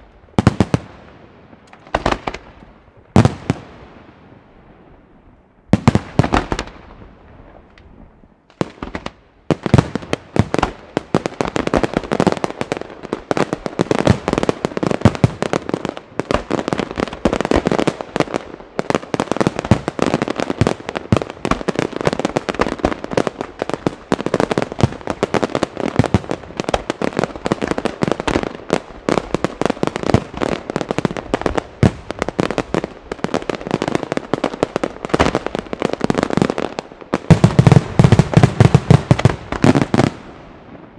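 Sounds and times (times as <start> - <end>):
fireworks bangs and crackling: 0.0 - 40.9.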